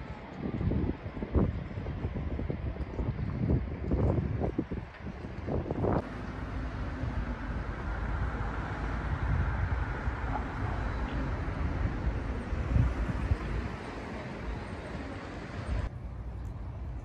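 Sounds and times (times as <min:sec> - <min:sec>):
outdoor background rumble: 0:00.0 - 0:17.0.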